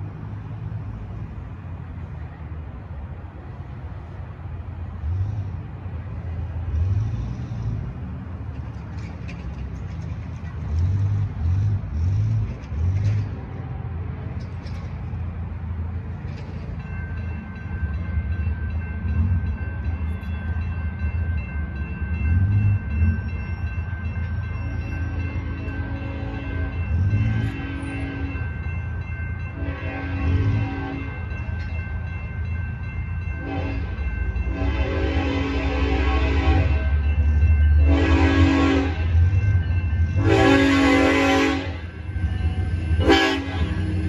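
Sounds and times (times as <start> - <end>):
train rumble: 0.0 - 44.0
crossing warning bell ringing: 13.0 - 44.0
distant train horn blasts: 25.0 - 28.6, 29.5 - 31.4, 33.4 - 37.2, 37.8 - 44.0.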